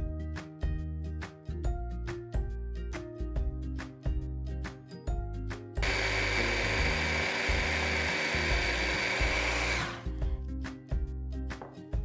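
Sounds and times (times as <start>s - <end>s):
hand blender motor whining: 5.8s - 10.2s.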